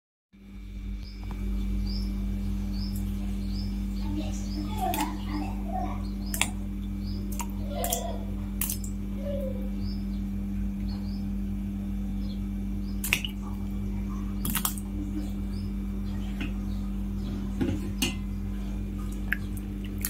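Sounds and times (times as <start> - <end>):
steady low hum: 0.4 - 20.0
gourds plopping into water: 7.3 - 9.0, 13.0 - 13.6, 14.4 - 15.2.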